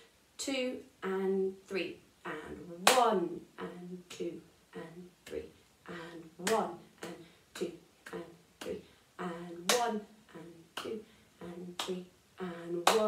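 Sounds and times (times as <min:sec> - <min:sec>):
woman counting: 0:00.4 - 0:13.0
hand claps: 0:02.8 - 0:03.1, 0:11.8 - 0:12.0.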